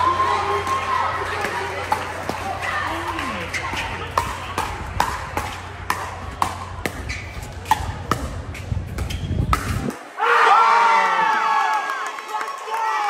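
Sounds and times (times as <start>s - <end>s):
spectators cheering and shouting: 0.0s - 6.2s, 9.9s - 13.0s.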